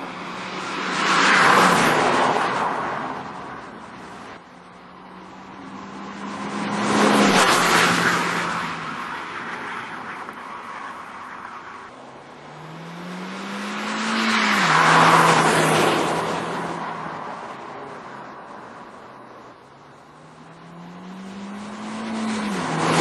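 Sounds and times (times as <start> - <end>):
car accelerating: 4.6 - 9.4, 11.9 - 17.9, 19.9 - 23.0.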